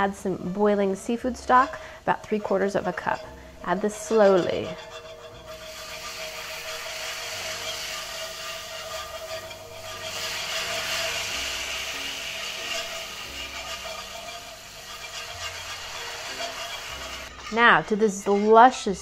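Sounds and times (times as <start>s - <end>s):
whisk scraping in a skillet: 0.0s - 19.0s
sauce sizzling and bubbling: 4.8s - 17.4s.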